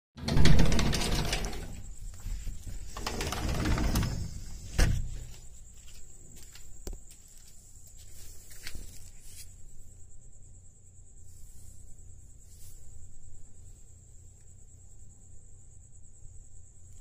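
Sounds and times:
footsteps on paving: 0:05.2 - 0:08.9.

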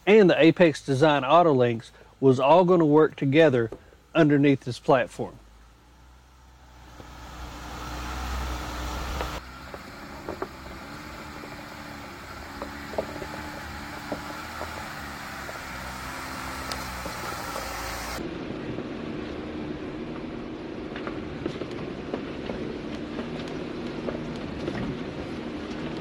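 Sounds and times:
vehicle engine running: 0:05.2 - 0:26.0
knocks and clunks from suspension: 0:09.1 - 0:15.6.

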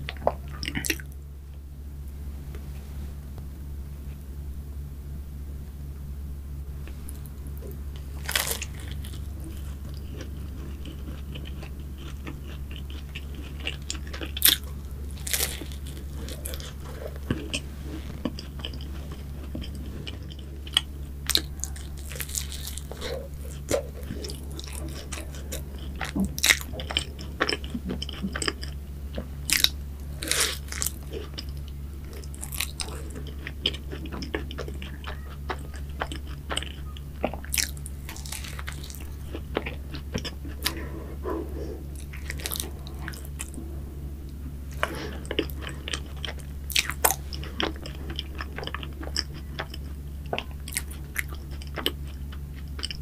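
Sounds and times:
crunchy cookie chewing: 0:00.0 - 0:01.2, 0:06.8 - 0:53.0
low hum: 0:00.0 - 0:53.0.

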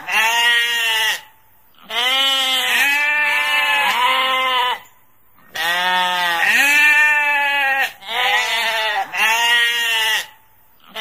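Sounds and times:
sheep bleating: 0:00.0 - 0:11.0.

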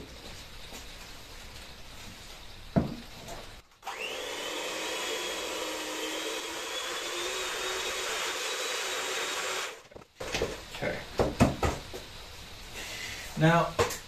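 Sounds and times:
electric hand mixer whine: 0:03.8 - 0:09.9.

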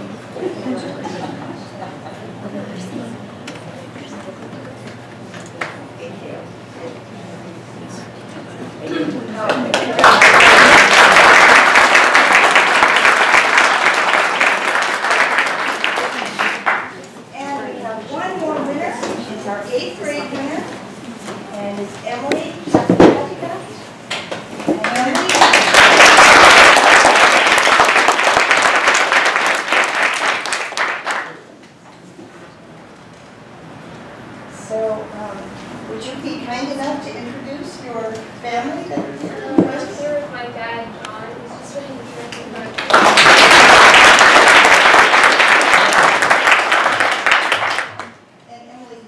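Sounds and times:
audience applauding: 0:09.5 - 0:17.0, 0:24.8 - 0:31.5, 0:42.7 - 0:48.2.

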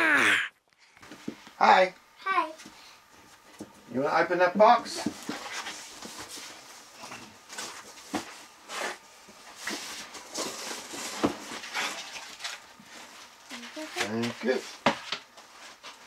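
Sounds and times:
rummaging in cardboard box: 0:09.5 - 0:14.2.

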